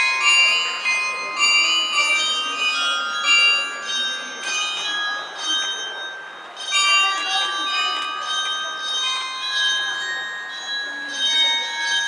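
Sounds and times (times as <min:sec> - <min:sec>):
struck bells melody: 0:00.0 - 0:12.0.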